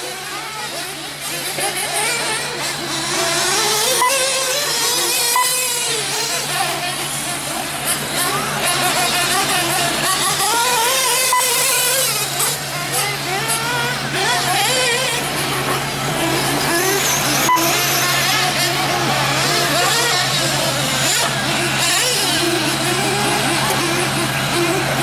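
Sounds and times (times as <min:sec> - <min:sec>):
rc car motors whining: 0:00.0 - 0:25.0.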